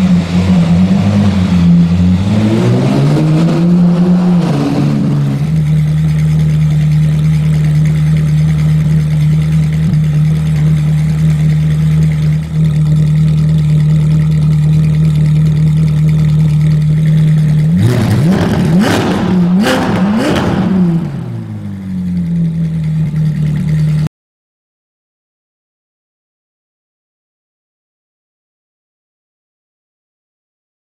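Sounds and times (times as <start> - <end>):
car engine idling and revving: 0.0 - 24.1.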